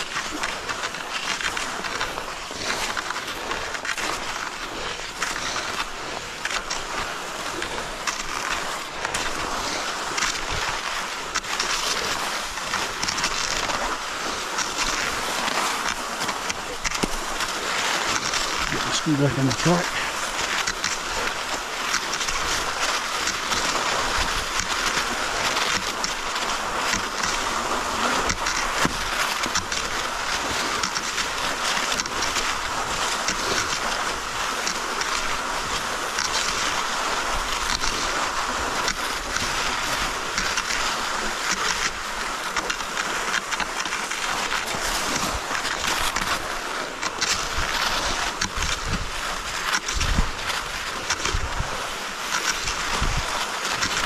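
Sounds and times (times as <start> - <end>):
skis hissing in snow tracks: 0.0 - 54.0
wind on microphone: 47.4 - 51.9, 52.6 - 54.0.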